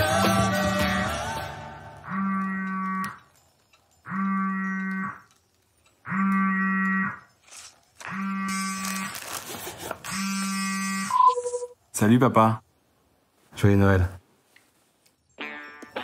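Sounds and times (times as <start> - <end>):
phone ringing buzz: 6.1 - 9.1, 10.1 - 11.8.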